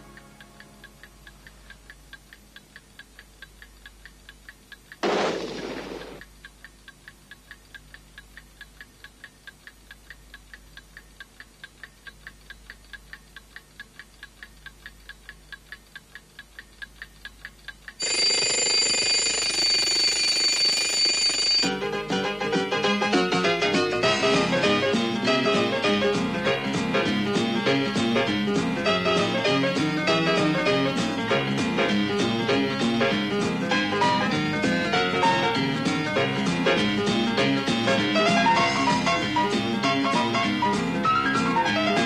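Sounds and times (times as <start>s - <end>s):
clock ticking: 0.0s - 21.8s
loud burst of noise: 5.0s - 6.2s
alarm clock bell ringing: 18.0s - 21.8s.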